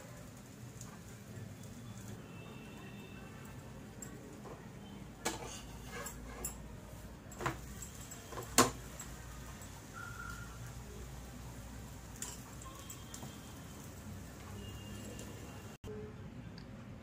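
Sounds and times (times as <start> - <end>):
metal spatula scraping a griddle: 5.3 - 6.7.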